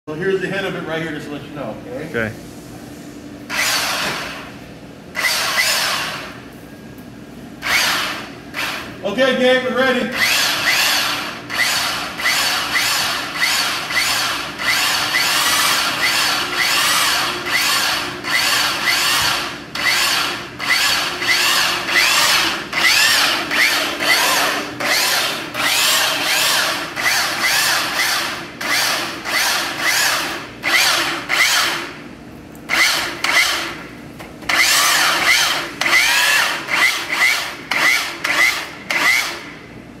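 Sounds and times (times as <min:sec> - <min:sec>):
drill driving wire puller: 0:03.5 - 0:04.5, 0:05.2 - 0:06.3, 0:07.6 - 0:08.9, 0:10.2 - 0:32.0, 0:32.7 - 0:33.8, 0:34.5 - 0:39.5.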